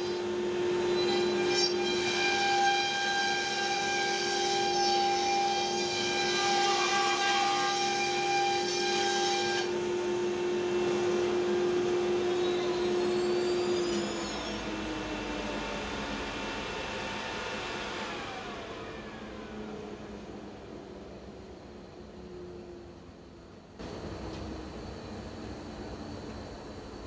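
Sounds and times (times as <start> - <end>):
router spindle whine: 0.0 - 6.9, 7.9 - 23.1.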